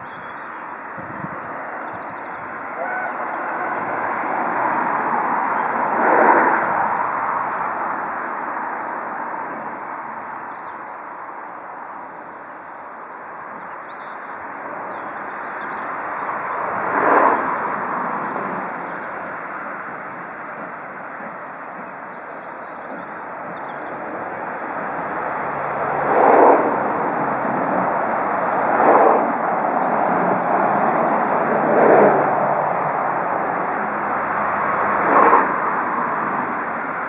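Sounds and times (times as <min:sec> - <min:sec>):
distant steam locomotive hissing: 0:01.4 - 0:06.2.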